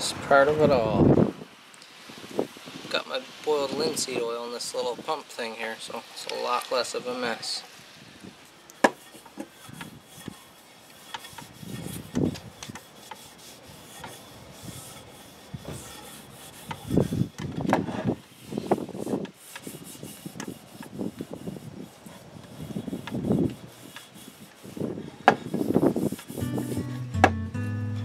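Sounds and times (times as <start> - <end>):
hand rubbing oiled wood: 8.4 - 28.0.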